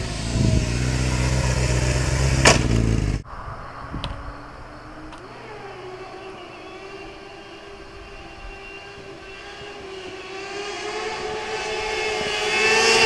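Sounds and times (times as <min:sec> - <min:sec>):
distant engine: 0:00.0 - 0:13.0
motorcycle engine passing: 0:00.0 - 0:13.0.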